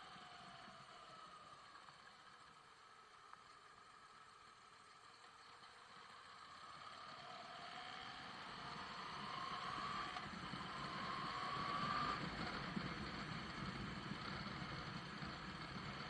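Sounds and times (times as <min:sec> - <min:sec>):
motorcycle engine accelerating: 0:05.8 - 0:16.0.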